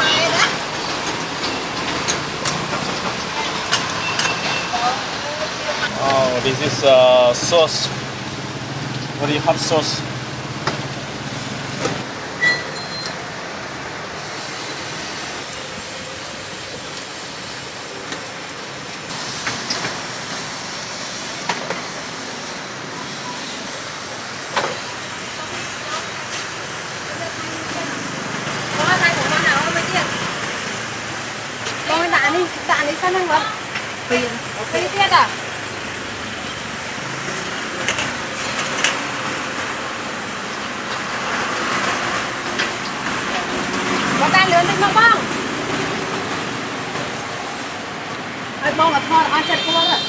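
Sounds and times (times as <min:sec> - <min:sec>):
cars passing: 0:00.0 - 0:50.0
street traffic: 0:00.0 - 0:50.0
motorbike passing: 0:27.0 - 0:50.0.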